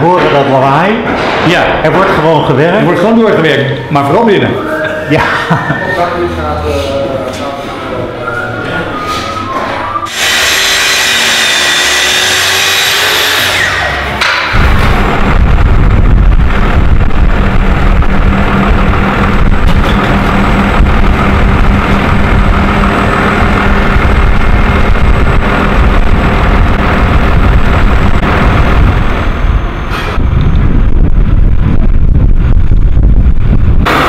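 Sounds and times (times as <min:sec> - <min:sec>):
diesel truck engine running: 0:08.9 - 0:34.0.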